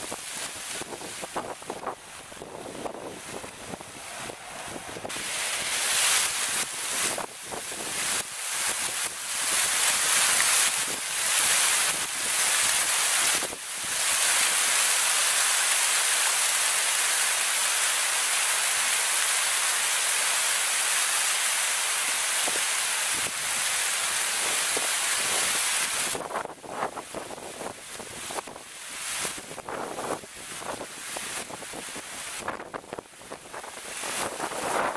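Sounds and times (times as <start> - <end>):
fountain jets spraying water: 0.0 - 34.9.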